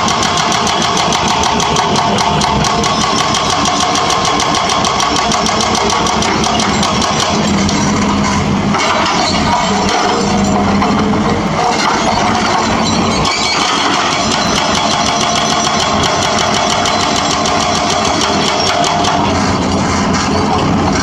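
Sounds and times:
hydraulic breaker hammering concrete: 0:00.0 - 0:07.8, 0:08.7 - 0:20.2
diesel engine running: 0:00.0 - 0:21.0.

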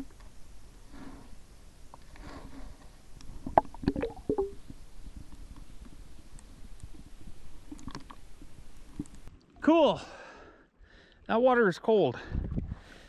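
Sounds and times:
underwater knocks and gurgles: 0:03.2 - 0:09.5.

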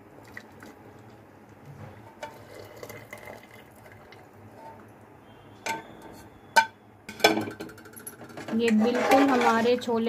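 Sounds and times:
water trickling through strainer: 0:02.2 - 0:04.3.

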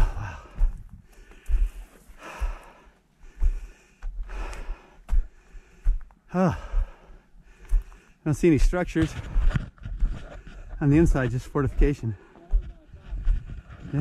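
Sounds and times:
person breathing hard: 0:00.0 - 0:08.2.

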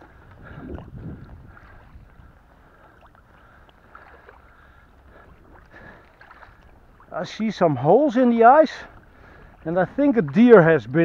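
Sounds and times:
wind rumble on microphone: 0:00.0 - 0:03.3
paddle dipping and dripping in water: 0:00.0 - 0:11.0.

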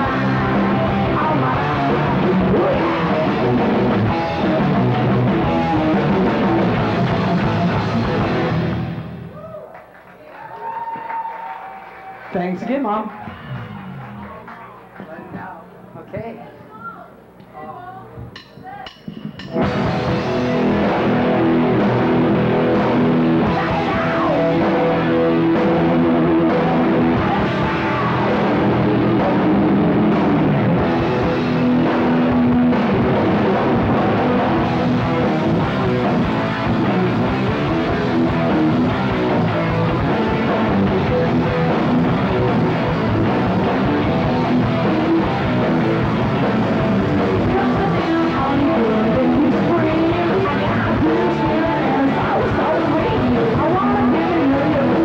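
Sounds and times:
drum kit: 0:00.0 - 0:09.4, 0:18.2 - 0:55.0
electric guitars: 0:00.0 - 0:09.5, 0:11.6 - 0:15.6, 0:19.4 - 0:55.0.

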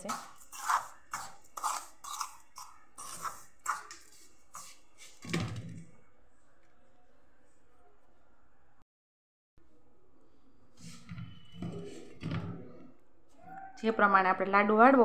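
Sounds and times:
metal spoon scraping steel bowl: 0:00.0 - 0:05.2.

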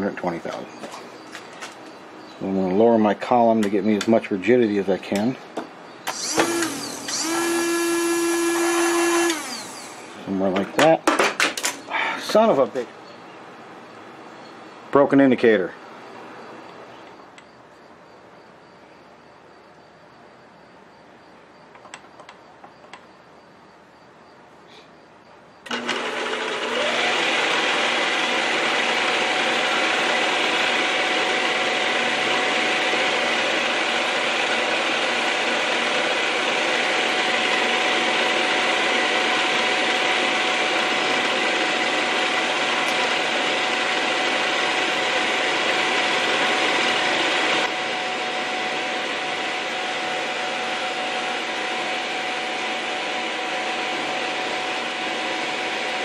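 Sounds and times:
milling machine motor whine: 0:06.0 - 0:10.7, 0:25.6 - 0:56.0
end mill cutting metal hiss: 0:06.1 - 0:10.4.

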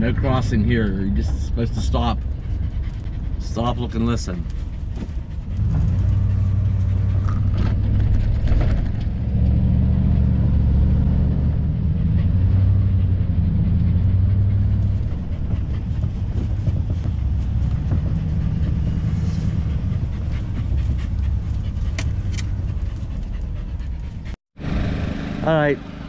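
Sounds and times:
motorhome engine droning: 0:00.0 - 0:26.0.

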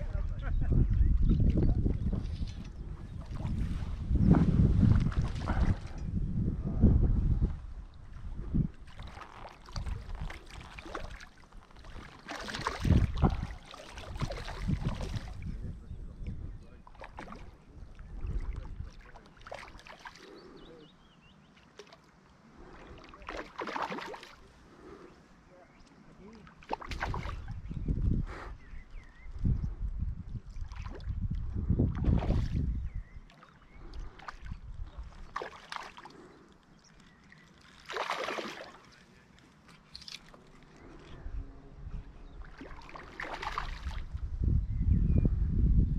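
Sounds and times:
fish splashing in water: 0:08.8 - 0:15.4, 0:22.9 - 0:24.5, 0:26.6 - 0:27.5, 0:34.1 - 0:39.0, 0:42.4 - 0:44.1.

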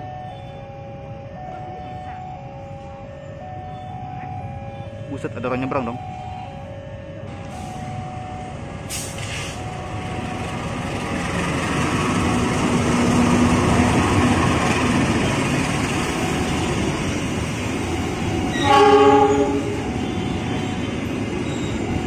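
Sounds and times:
locomotive engine running: 0:05.1 - 0:22.0
wheels rumbling on rails: 0:06.6 - 0:22.0.

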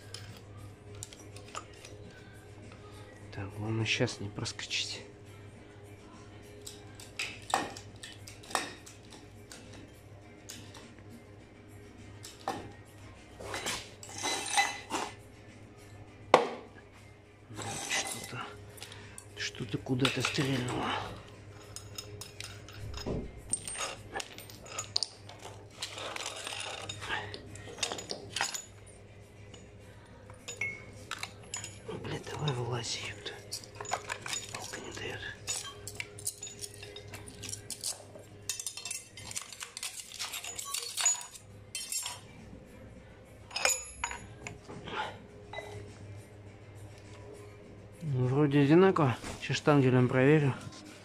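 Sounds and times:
steel parts clinking: 0:00.0 - 0:02.0, 0:13.4 - 0:15.2, 0:17.5 - 0:42.4, 0:43.5 - 0:44.6
sharp metallic clink with ring: 0:43.5 - 0:44.2.

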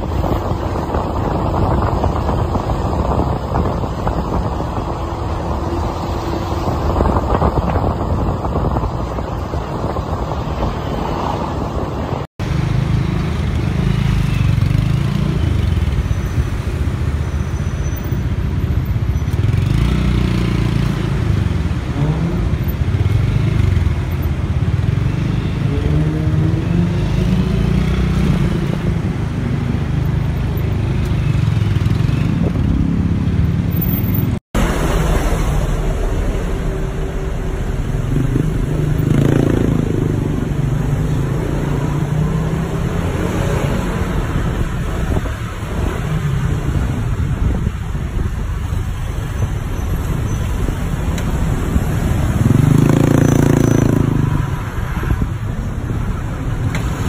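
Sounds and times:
road and traffic noise: 0:00.0 - 0:57.0
motorbike engine rumbling: 0:28.5 - 0:57.0.

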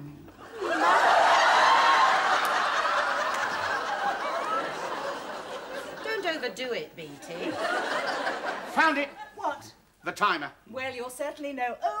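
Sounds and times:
studio audience laughing: 0:00.4 - 0:06.5, 0:07.2 - 0:09.4.

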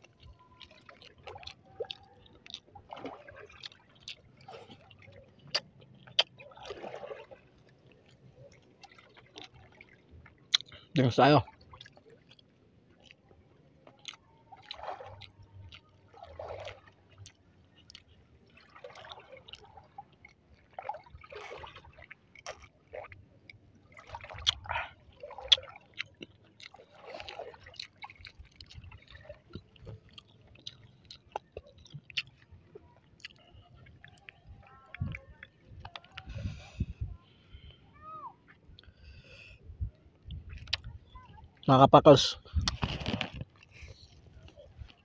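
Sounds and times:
wet chewing: 0:00.0 - 0:10.9, 0:11.7 - 0:20.7, 0:21.6 - 0:36.9, 0:40.1 - 0:41.7, 0:42.4 - 0:45.0
person swallowing gulps: 0:03.6 - 0:06.5, 0:24.3 - 0:34.2, 0:42.4 - 0:44.2.

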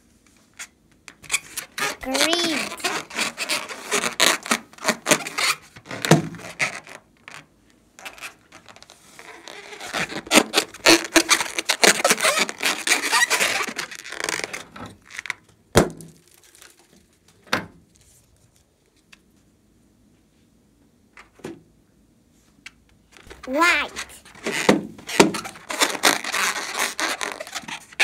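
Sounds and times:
rubber balloon crackling and squeaking: 0:00.5 - 0:15.5, 0:23.2 - 0:28.0.

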